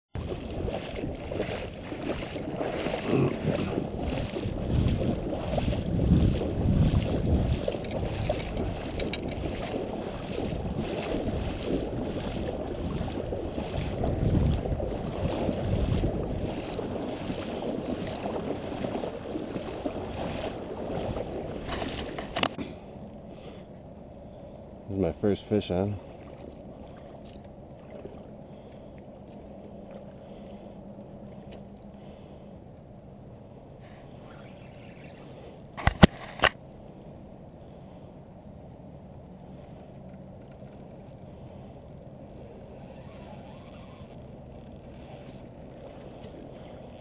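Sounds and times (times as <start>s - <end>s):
wind buffeting microphone: 0.2s - 22.5s.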